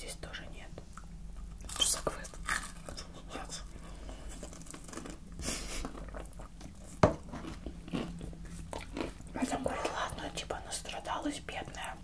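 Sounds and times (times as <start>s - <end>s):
chewing with wet mouth clicks: 7.4s - 9.4s.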